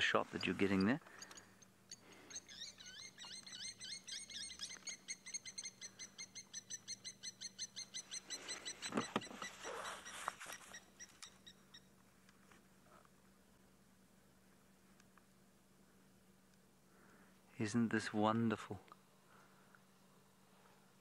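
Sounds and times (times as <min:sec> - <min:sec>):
animal chirping rapidly: 0:02.2 - 0:11.8.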